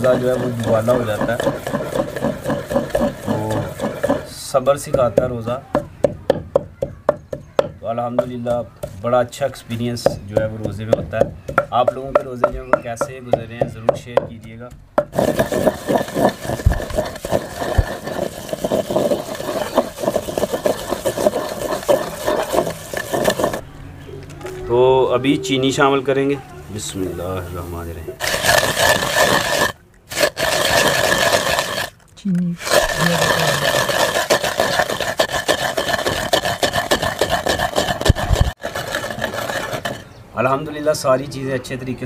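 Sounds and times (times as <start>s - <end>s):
pestle pounding in mortar: 0.0s - 23.6s, 28.2s - 32.0s, 32.6s - 40.1s.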